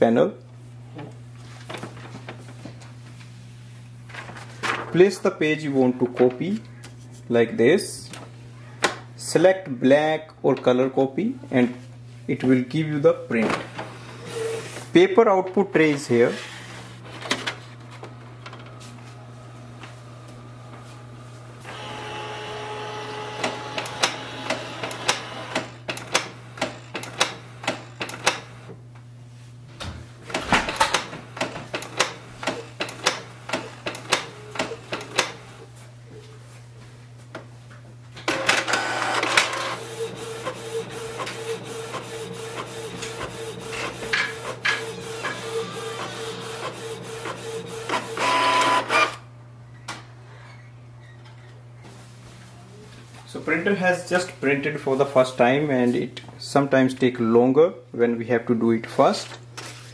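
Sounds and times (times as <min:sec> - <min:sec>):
printer whine as page feeds: 0:14.0 - 0:14.9, 0:18.0 - 0:28.7, 0:38.3 - 0:49.2
printer whirring and clicking: 0:17.0 - 0:28.8, 0:30.3 - 0:35.6, 0:38.2 - 0:49.2.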